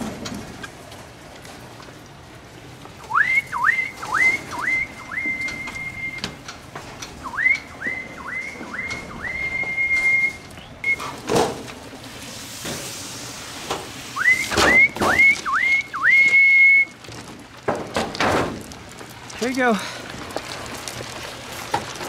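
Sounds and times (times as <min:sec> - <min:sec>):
person whistling: 0:03.1 - 0:06.3, 0:07.2 - 0:11.1, 0:14.2 - 0:16.9.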